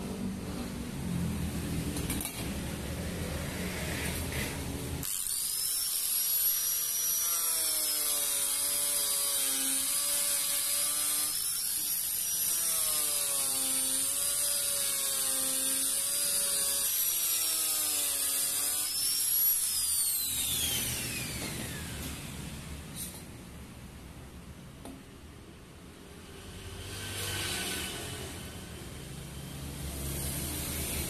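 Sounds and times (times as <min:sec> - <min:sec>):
angle grinder grinding metal: 0:04.0 - 0:22.1.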